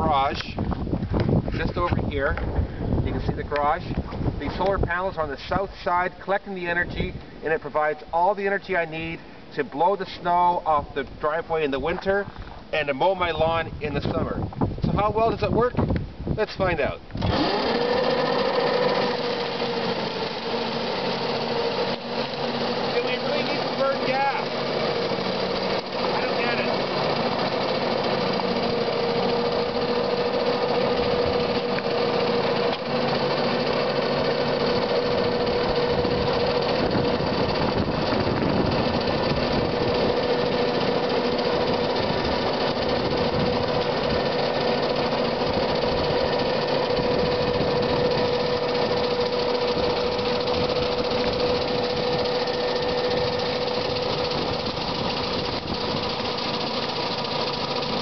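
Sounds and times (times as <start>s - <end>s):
snow rushing from snowblower chute: 16.7s - 58.0s
electric motor whine: 17.1s - 58.0s.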